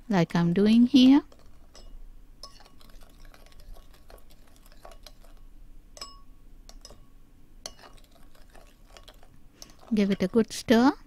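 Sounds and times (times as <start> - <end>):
spoon stirring sauce: 1.0 - 10.8
spoon clinking on ceramic bowl: 1.7 - 5.4, 6.0 - 10.3.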